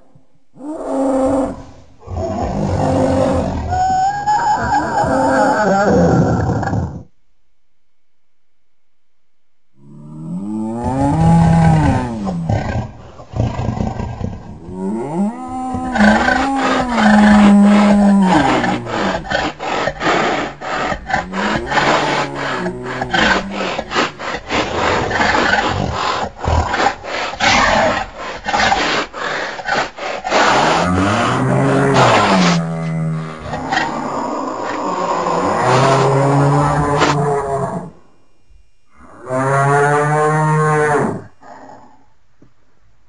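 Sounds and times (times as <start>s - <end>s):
creature roars bellowing: 0.6s - 7.1s, 9.8s - 12.9s, 14.6s - 28.7s, 29.7s - 38.0s
rapid rasping rattling growl: 15.7s - 37.2s.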